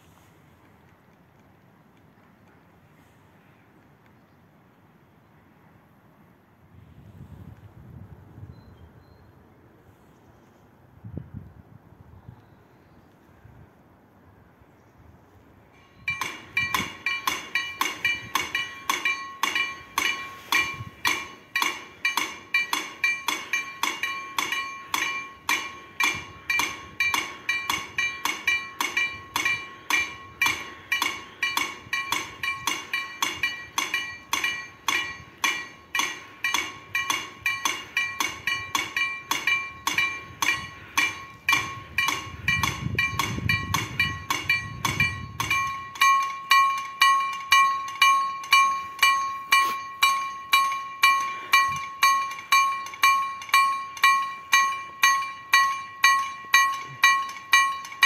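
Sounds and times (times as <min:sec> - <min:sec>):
level crossing warning bell: 0:15.8 - 0:58.0.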